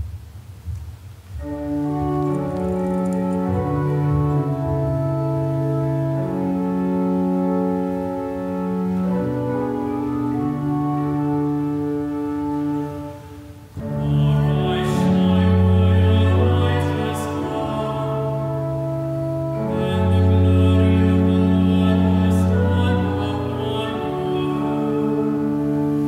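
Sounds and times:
organ playing slow chords: 0:01.4 - 0:26.0.

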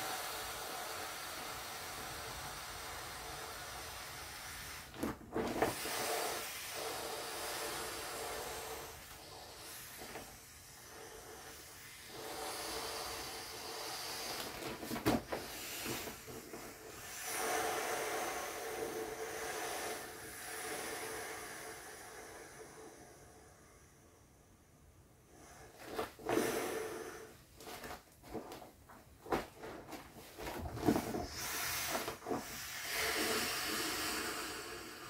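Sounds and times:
air rushing out of inflatable: 0:00.0 - 0:24.0, 0:25.3 - 0:35.0
sharp vinyl crackles: 0:13.6 - 0:17.0, 0:27.5 - 0:33.4.

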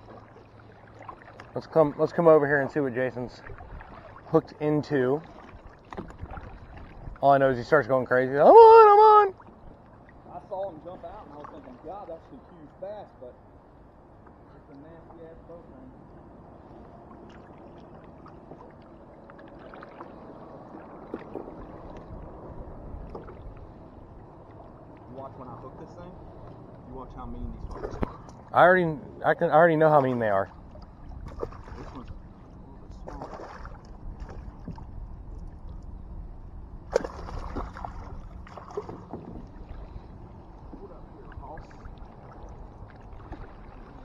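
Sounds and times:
water lapping against kayak hull: 0:00.0 - 0:12.8, 0:13.5 - 0:44.0
fish splashing: 0:31.2 - 0:32.1, 0:33.1 - 0:34.6, 0:36.9 - 0:40.0.

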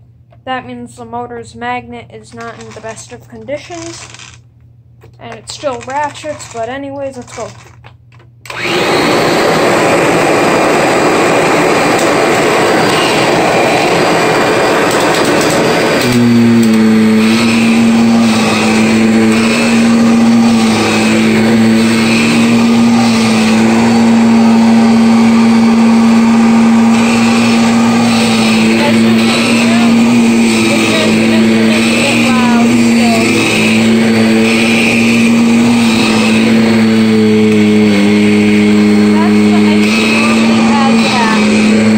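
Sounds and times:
vacuum cleaner running: 0:02.4 - 0:04.4, 0:05.5 - 0:07.7, 0:08.5 - 0:41.9.

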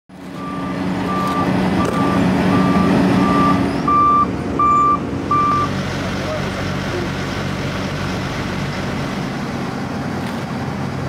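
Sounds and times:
heavy machine engine running: 0:00.1 - 0:11.0
reversing alarm beeping: 0:00.4 - 0:05.7.

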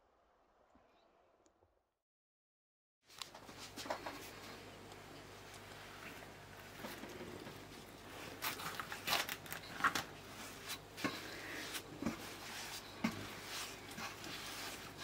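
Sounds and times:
dough squelching and slapping: 0:07.6 - 0:15.0.

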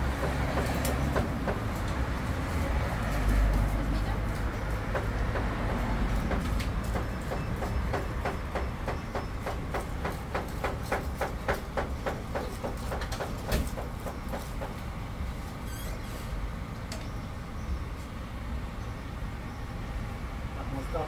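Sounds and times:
rapid sharp knocking: 0:04.8 - 0:14.8.

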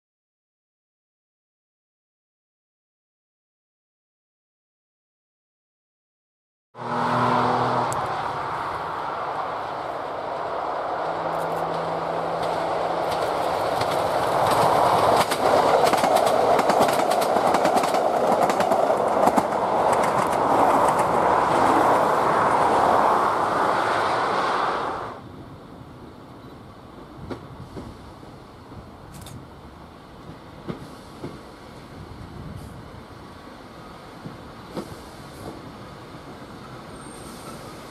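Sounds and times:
diesel train engines droning: 0:06.8 - 0:37.9
faint outdoor ambience: 0:06.8 - 0:37.9
train wheels clacking on rails: 0:11.0 - 0:21.8, 0:27.2 - 0:28.1, 0:30.2 - 0:31.6, 0:34.2 - 0:35.7.

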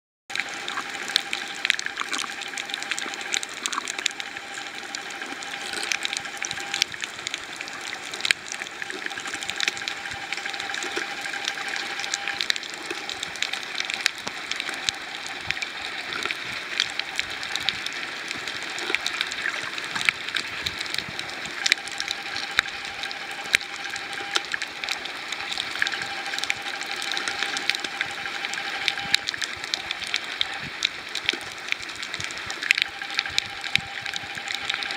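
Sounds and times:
faint steady tone: 0:00.3 - 0:34.9
snapping shrimp crackle underwater: 0:00.3 - 0:34.9.

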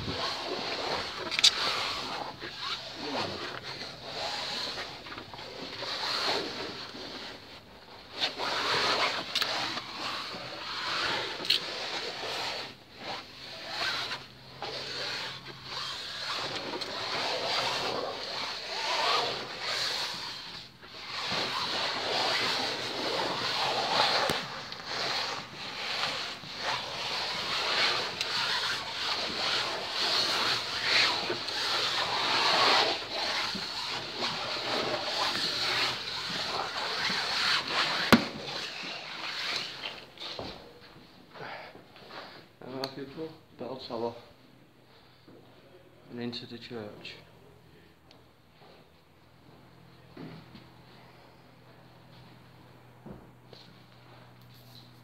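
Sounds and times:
microphone rubbing against clothing: 0:00.0 - 0:43.4.

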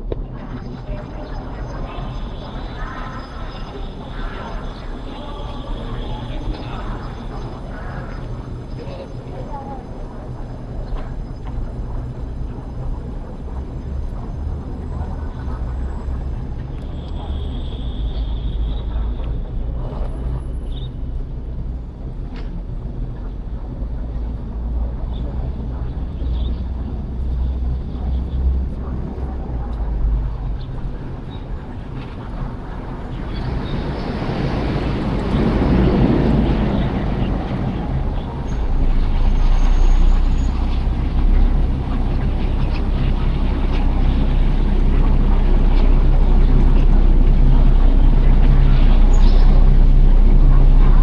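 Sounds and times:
street noise: 0:00.0 - 0:51.0
traffic rumble: 0:00.0 - 0:51.0
wind on microphone: 0:00.0 - 0:51.0
vehicle engine humming: 0:02.2 - 0:51.0.

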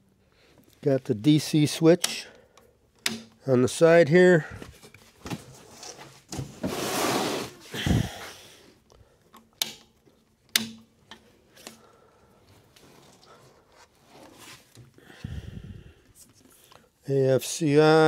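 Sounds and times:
plastic and foam rustling: 0:04.5 - 0:07.8, 0:12.5 - 0:14.9.

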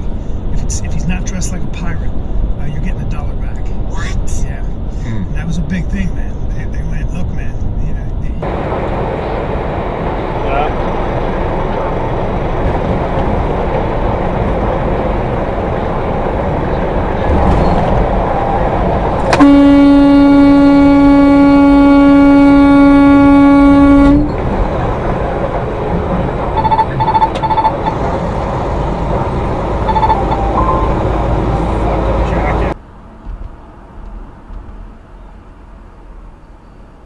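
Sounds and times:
truck road and engine rumble: 0:00.0 - 0:37.0
truck horn blast: 0:19.3 - 0:24.4
short beeps: 0:26.6 - 0:28.0, 0:29.9 - 0:31.0.

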